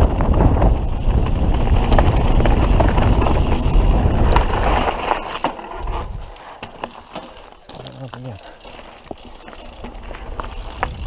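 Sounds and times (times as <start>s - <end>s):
wind rushing on microphone: 0.0s - 5.0s
bike rattles and clicks: 0.0s - 11.0s
bike tyres on dirt trail: 0.0s - 11.0s.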